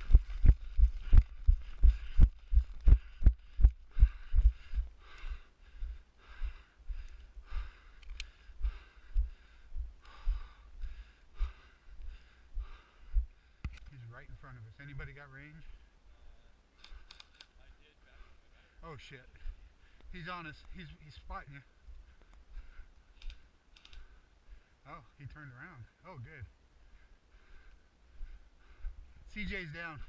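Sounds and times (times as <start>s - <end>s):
running footsteps on grass: 0.0s - 7.9s.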